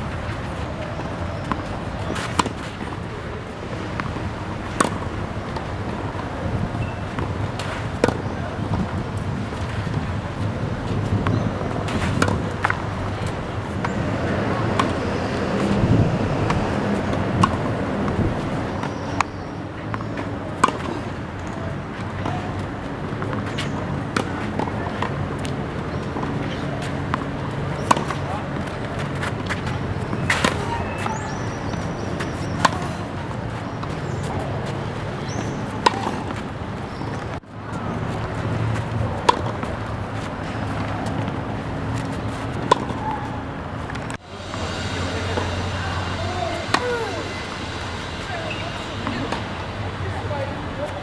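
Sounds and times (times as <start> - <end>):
tennis balls struck by racket: 0.1 - 10.0, 10.9 - 37.3, 38.5 - 43.2
low background rumble: 43.4 - 51.0.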